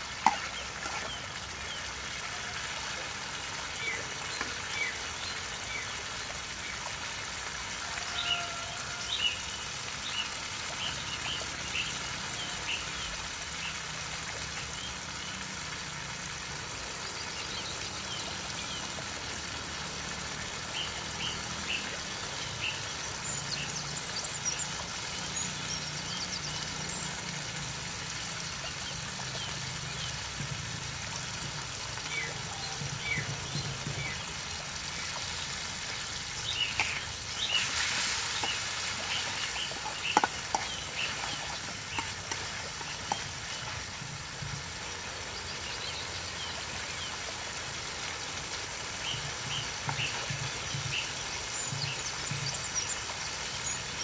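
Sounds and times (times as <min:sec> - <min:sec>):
birds chirping: 0:35.1 - 0:47.1.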